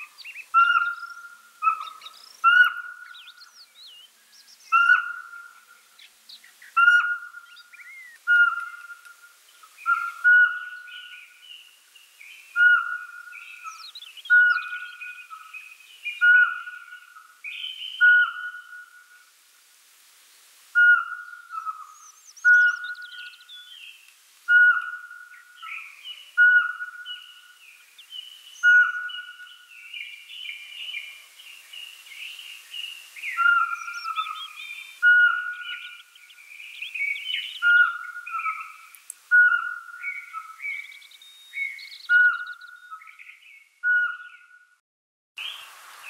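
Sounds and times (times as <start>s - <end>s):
owl whistled notes: 0.5s - 3.0s, 6.8s - 9.2s, 9.8s - 11.2s, 12.6s - 15.5s, 16.1s - 19.2s, 20.8s - 23.4s, 24.5s - 27.4s, 28.6s - 29.6s, 33.2s - 36.0s, 37.0s - 43.1s, 43.8s - 44.6s.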